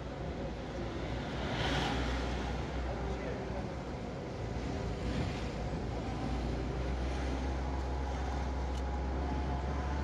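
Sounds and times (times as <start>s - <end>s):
car engine and road rumble: 0.0s - 10.0s.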